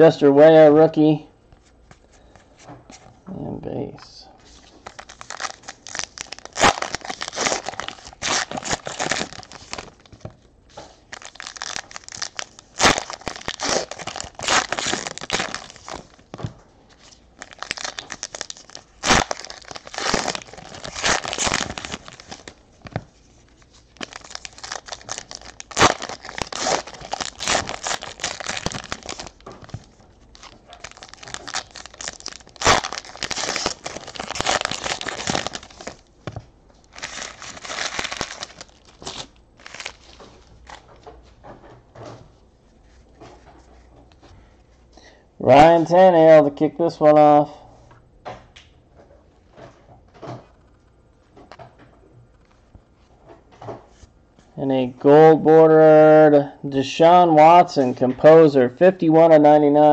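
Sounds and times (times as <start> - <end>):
wrappers tearing and crinkling: 4.5 - 10.2, 10.9 - 36.1, 36.8 - 40.8.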